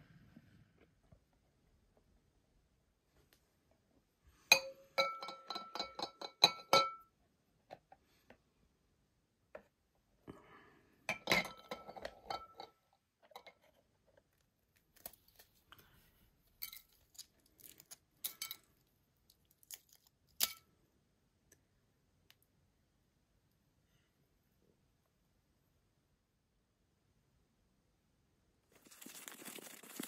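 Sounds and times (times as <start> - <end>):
eggshell crackling: 16.6 - 20.5, 28.7 - 30.0.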